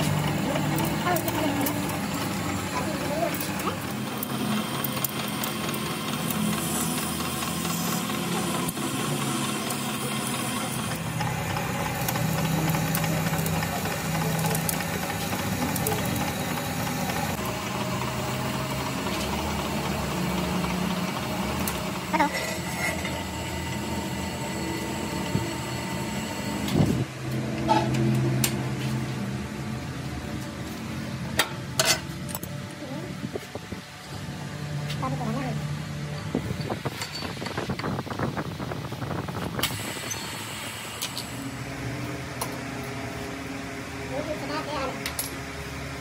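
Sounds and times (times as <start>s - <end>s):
metal lathe hum with cutting: 0.0s - 27.8s.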